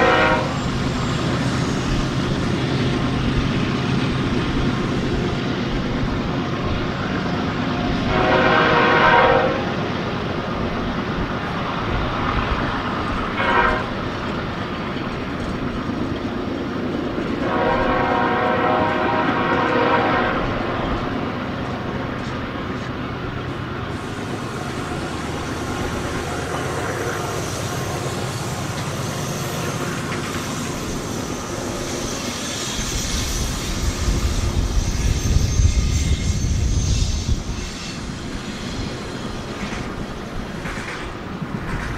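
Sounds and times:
locomotive horn blasts: 0:00.0 - 0:00.6, 0:08.0 - 0:09.8, 0:13.4 - 0:14.0, 0:17.4 - 0:20.6
diesel engine and train rumble: 0:00.0 - 0:41.9.

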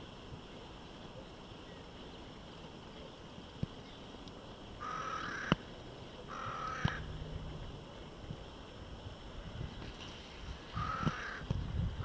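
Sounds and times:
crow cawing: 0:04.8 - 0:05.6, 0:06.3 - 0:07.1, 0:10.7 - 0:11.4.

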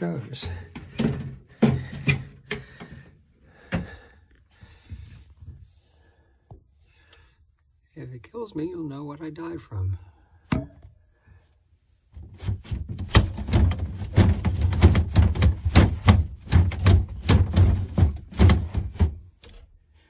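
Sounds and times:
rapid knocking and thumping: 0:00.5 - 0:03.0, 0:12.2 - 0:19.2.

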